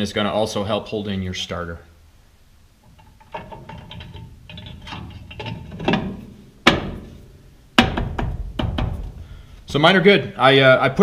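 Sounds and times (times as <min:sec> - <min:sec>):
metal plate scraping and clinking: 0:02.8 - 0:07.3.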